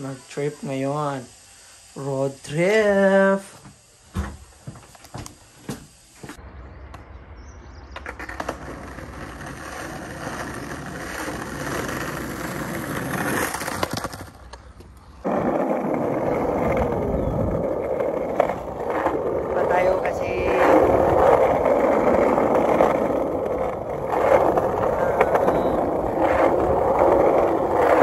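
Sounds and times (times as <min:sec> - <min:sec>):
skateboard wheels rolling on asphalt: 0:06.2 - 0:28.0
skateboard clicks and cracks: 0:08.0 - 0:28.0.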